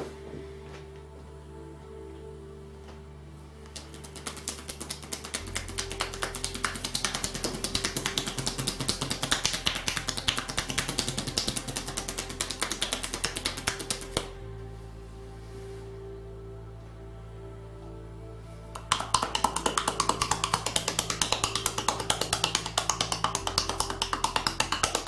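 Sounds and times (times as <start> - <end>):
soft background music: 0.0 - 25.0
hands slapping a bare back: 3.8 - 14.3, 18.8 - 25.0.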